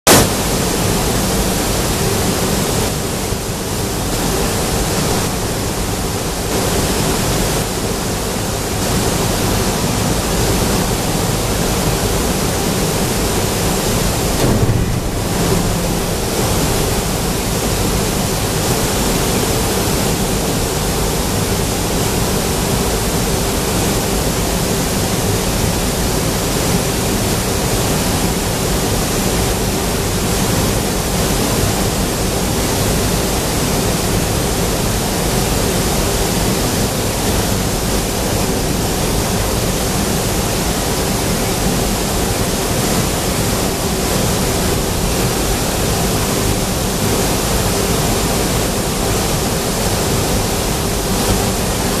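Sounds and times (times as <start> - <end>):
constant machine hum: 0.2 - 52.0
forge machinery rushing noise: 8.7 - 24.5.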